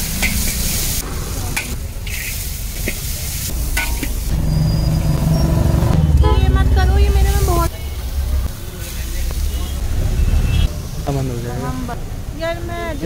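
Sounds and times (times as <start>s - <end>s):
food sizzling in a wok: 0.0s - 5.8s, 7.0s - 11.0s
spatula scraping wok: 0.0s - 6.4s
low rumble: 3.5s - 8.5s
spatula clanking on pan: 3.7s - 4.3s.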